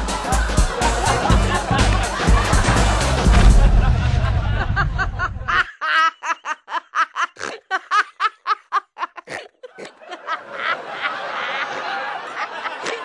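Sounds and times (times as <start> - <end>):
music: 0.0 - 4.5
woman laughing: 4.4 - 13.0.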